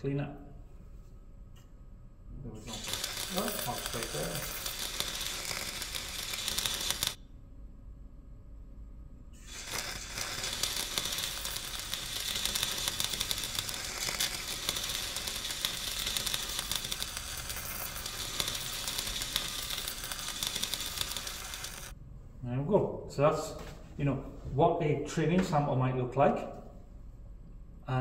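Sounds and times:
welding arc crackling sizzle: 2.6 - 7.2, 9.4 - 22.0.

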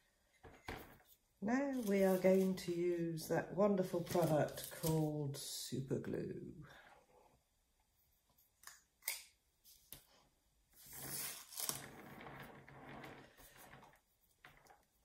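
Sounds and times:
rustle and scrape on paper: 1.0 - 3.0, 3.8 - 5.2, 10.8 - 15.0.

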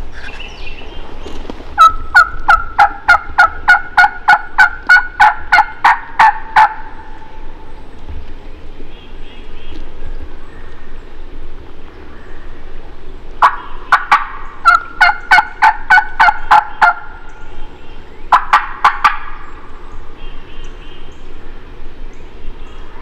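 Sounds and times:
wild turkey yelps: 1.8 - 6.9, 13.4 - 17.1.

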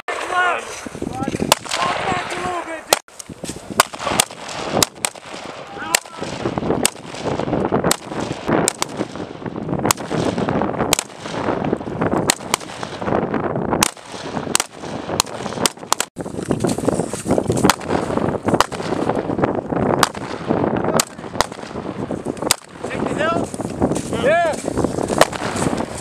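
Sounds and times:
rifle shots: 1.5 - 3.0, 3.8 - 11.6, 12.2 - 13.2, 13.8 - 16.1, 17.6 - 19.2, 20.0 - 21.8, 22.4 - 22.8, 25.2 - 25.8.

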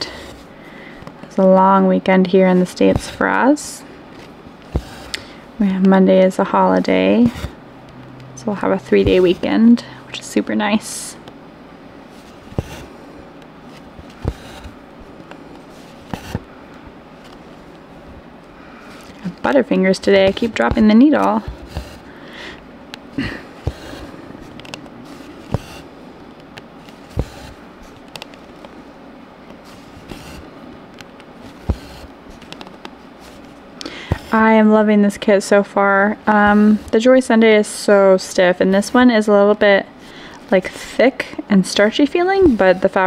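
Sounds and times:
fabric rustling: 2.2 - 5.1, 12.0 - 22.2, 23.1 - 34.6, 36.3 - 37.1.

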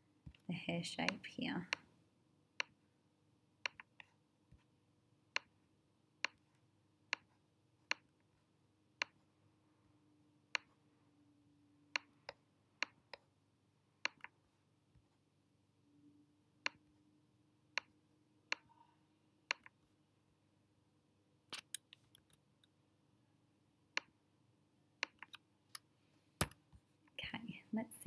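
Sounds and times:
computer mouse clicking: 3.6 - 4.1, 14.0 - 14.4, 19.4 - 19.8, 25.0 - 25.8.

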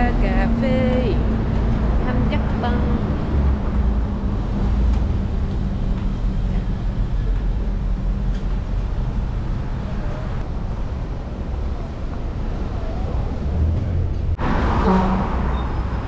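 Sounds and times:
vehicle rumble: 0.0 - 16.0.

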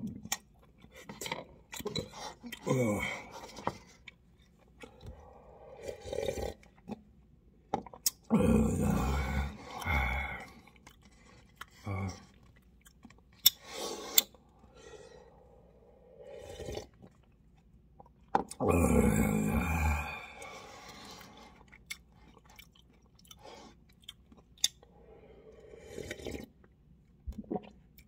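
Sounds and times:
man grunting: 2.6 - 3.3, 8.3 - 10.5, 11.8 - 12.2, 18.6 - 20.4
man slurping noodles: 5.6 - 6.6, 16.2 - 16.9, 25.6 - 26.5
chewing: 9.5 - 14.4, 20.4 - 24.9.

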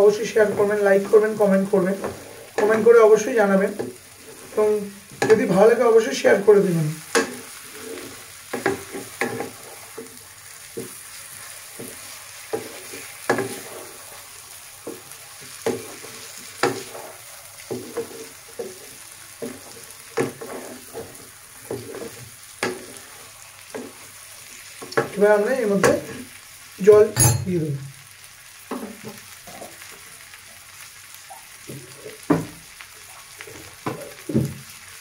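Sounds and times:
meat sizzling in a pan: 0.0 - 35.0
stirring knocks and scrapes: 0.4 - 3.0, 7.1 - 25.2, 28.7 - 29.7, 33.4 - 34.7.

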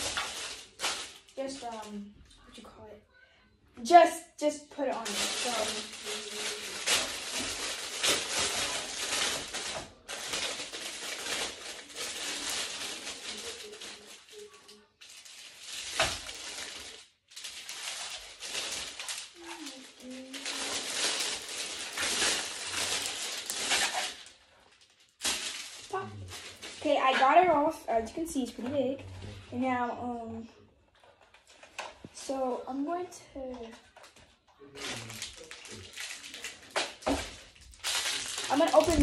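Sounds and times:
plastic wrap crinkling: 0.0 - 2.6, 4.8 - 27.5, 30.9 - 32.2, 33.4 - 39.0.

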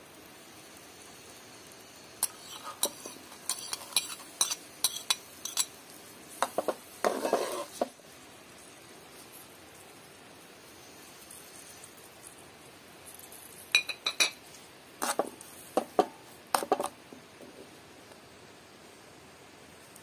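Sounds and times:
metal spoon clinking on dishes: 2.2 - 5.8, 13.8 - 14.4.

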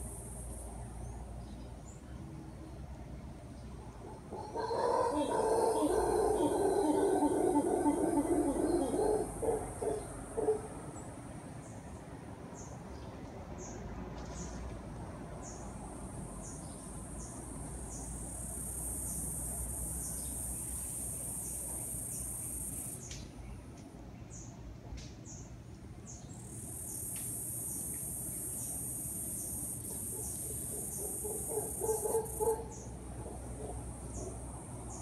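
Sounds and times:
high insect drone: 0.0 - 1.1, 15.4 - 23.1, 26.4 - 32.9
howler monkeys roaring: 4.0 - 10.9.

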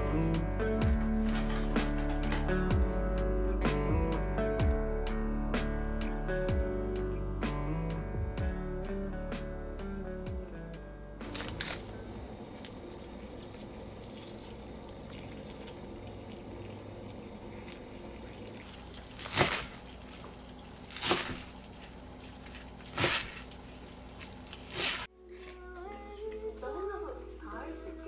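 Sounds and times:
water boiling in saucepan: 11.6 - 25.1.

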